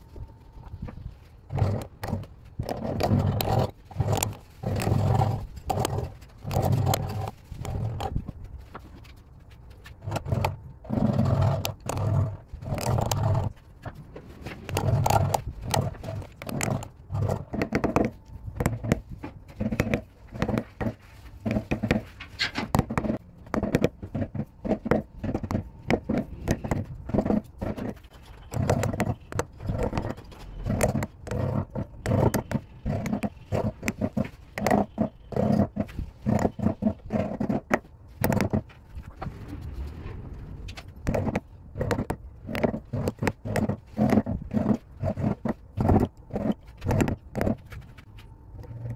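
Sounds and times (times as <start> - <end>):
gouge scraping into wood: 1.5 - 8.8, 9.8 - 39.2, 41.0 - 48.9.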